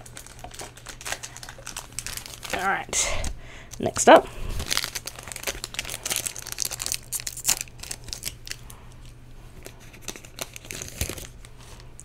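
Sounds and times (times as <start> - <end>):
plastic wrapper tearing and crinkling: 0.0 - 2.7, 4.6 - 9.0, 9.7 - 11.5.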